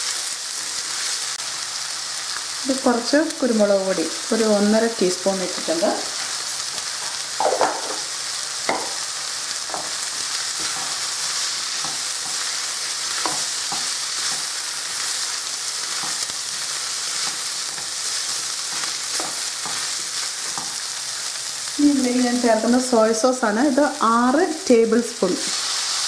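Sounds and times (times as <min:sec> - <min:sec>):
stir-fry sizzling in a wok: 0:00.0 - 0:26.0
spatula scraping and knocking pan: 0:06.0 - 0:08.1, 0:08.7 - 0:09.0, 0:09.7 - 0:14.6, 0:18.6 - 0:20.9.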